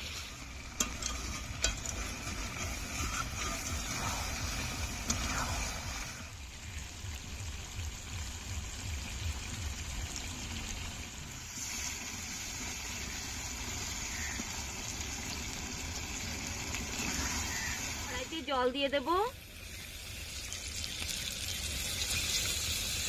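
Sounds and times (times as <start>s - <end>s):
curry sizzling in a pan: 0.0s - 23.0s.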